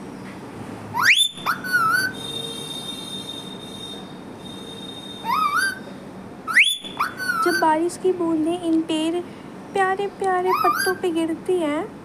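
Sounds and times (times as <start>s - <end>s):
parrot whistling: 1.0s - 5.9s, 6.5s - 7.7s, 10.5s - 11.0s.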